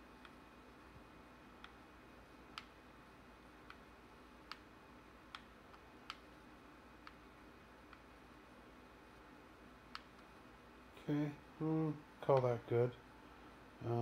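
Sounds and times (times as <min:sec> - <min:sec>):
low steady hum: 0:00.0 - 0:14.0
controller buttons clicking: 0:02.5 - 0:02.8, 0:03.6 - 0:04.7, 0:05.3 - 0:06.3, 0:07.0 - 0:08.1, 0:09.9 - 0:10.3.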